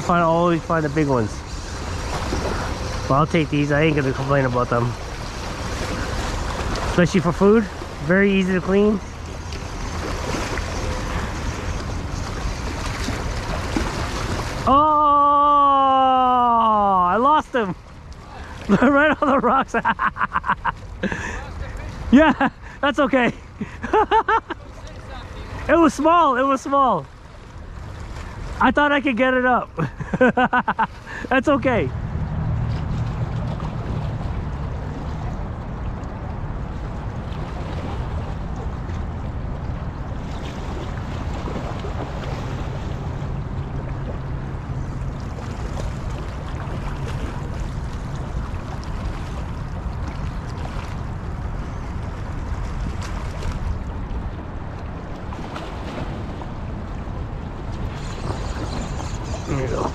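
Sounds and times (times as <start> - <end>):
water on rocky shore: 0.0 - 59.9
wind: 0.0 - 59.9
man shouting ohhh: 14.7 - 17.0.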